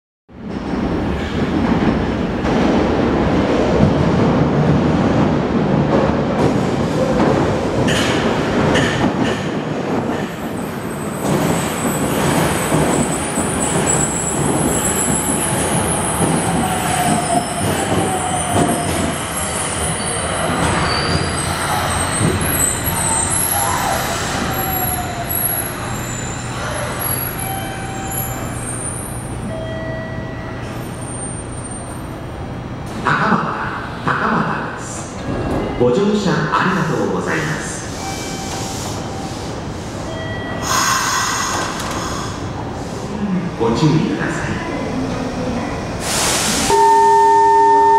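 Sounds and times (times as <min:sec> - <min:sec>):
train wheels rumbling on rails: 0:00.3 - 0:29.5
steady train hum: 0:00.3 - 0:47.9
wheel and brake squeals: 0:18.2 - 0:29.2.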